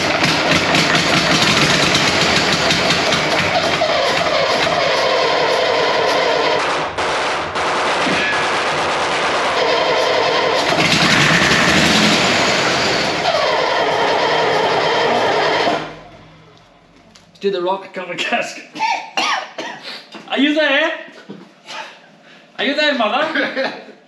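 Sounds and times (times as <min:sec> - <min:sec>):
diesel engine turning over and firing: 0:00.0 - 0:17.0
rapid loud engine bangs: 0:00.0 - 0:17.0.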